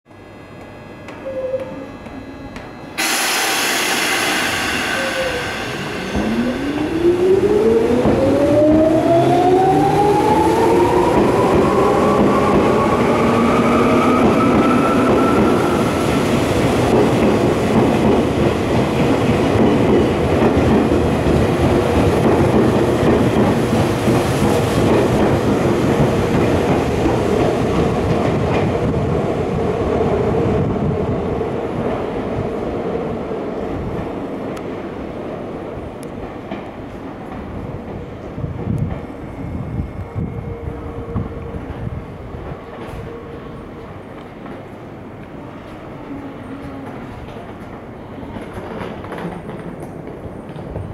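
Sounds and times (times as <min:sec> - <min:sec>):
train motor whine rising: 0:01.1 - 0:17.0
wheels rumbling on rail: 0:01.5 - 0:50.9
air hiss: 0:03.0 - 0:07.5.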